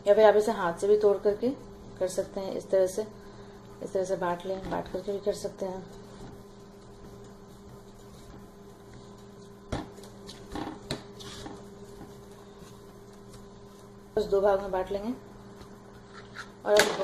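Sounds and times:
steady background hum: 0.0 - 17.0
hands patting dough on wood: 4.4 - 14.2.

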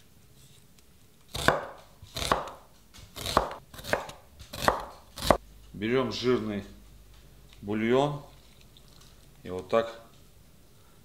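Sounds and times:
knife chopping on cutting board: 1.3 - 5.4.

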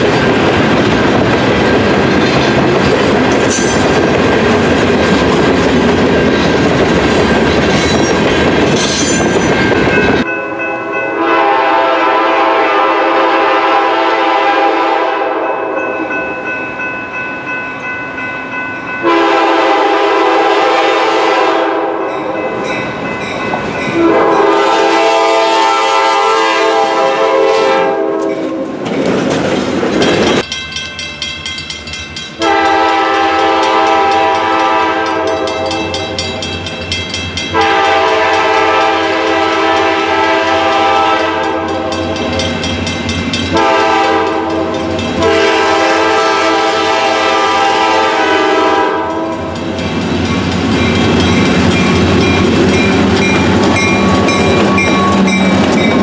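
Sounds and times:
locomotive air horn: 10.6 - 15.7, 19.0 - 22.2, 24.0 - 28.4, 32.4 - 36.1, 37.5 - 42.3, 43.5 - 49.6.

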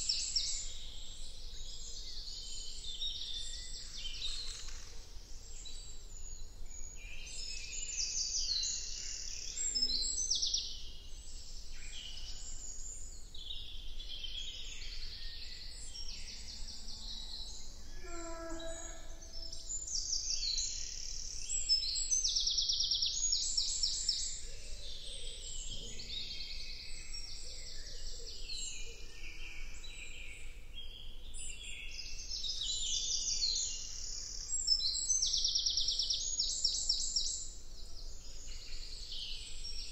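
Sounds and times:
birds singing and trilling: 0.0 - 39.9
lower bird call: 17.8 - 19.9.

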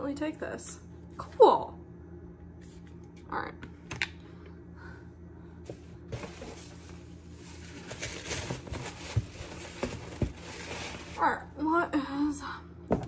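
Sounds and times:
steady low hum: 0.0 - 13.0
packaging rustling and knocking: 7.6 - 11.2.

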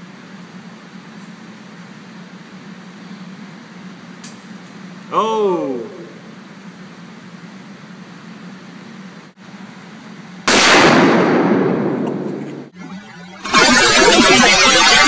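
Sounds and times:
steady low hum: 0.0 - 15.0
revolver gunshot: 10.5 - 12.7.

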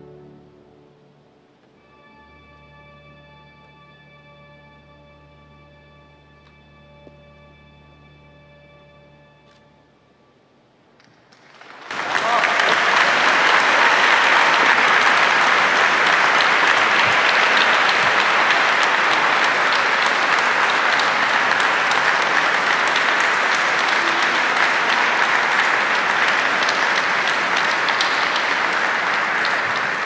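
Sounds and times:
audience clapping: 11.0 - 30.0.

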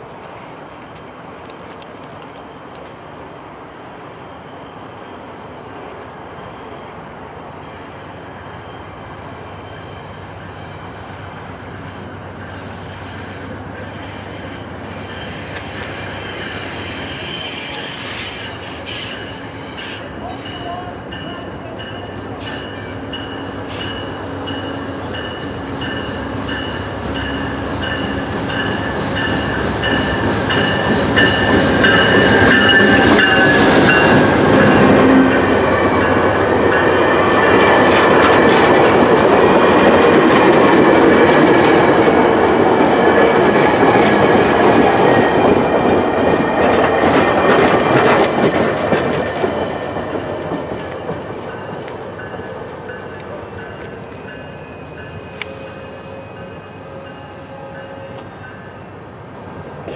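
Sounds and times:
passing train rush: 0.0 - 59.9.

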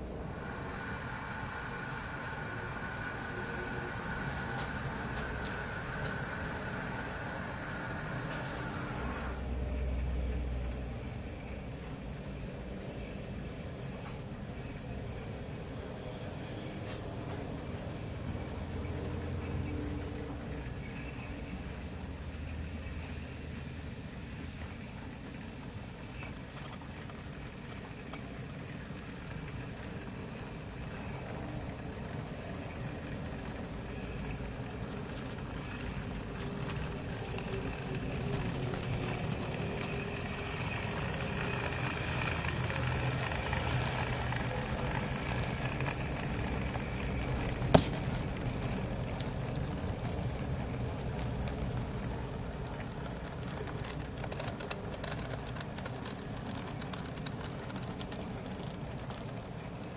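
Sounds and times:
model train running past: 0.0 - 59.9.

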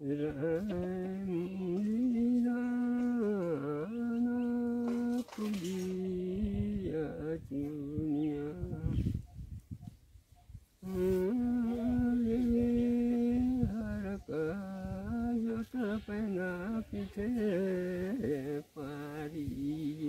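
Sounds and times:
elderly man singing unaccompanied: 0.0 - 9.3, 10.8 - 20.0.

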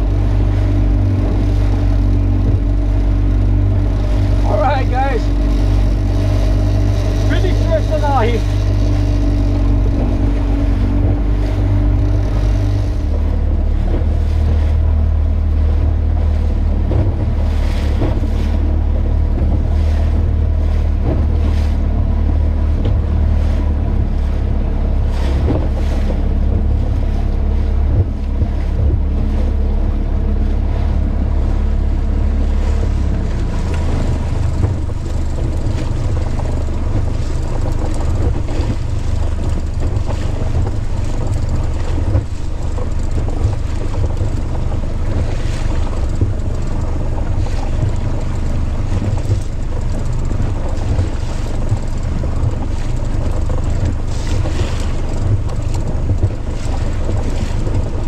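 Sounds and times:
outboard motor humming: 0.0 - 58.0
water rushing past hull: 0.0 - 58.0
wind buffeting microphone: 0.0 - 58.0.

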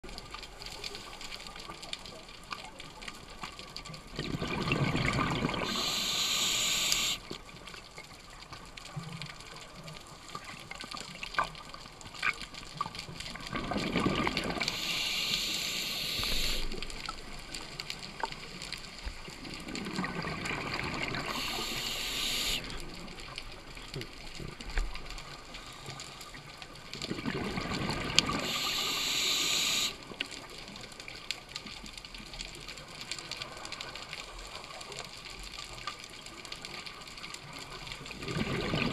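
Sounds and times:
diver breathing through regulator: 5.5 - 7.2, 14.5 - 16.8, 21.1 - 22.8, 28.3 - 30.0.

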